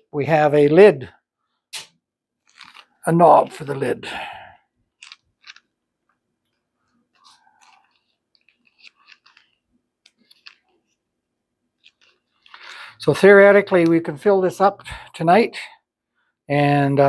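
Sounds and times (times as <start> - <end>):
small parts clicking: 2.4 - 2.9, 5.0 - 11.0, 11.8 - 12.8
plastic crinkling: 2.4 - 3.6, 6.4 - 11.0.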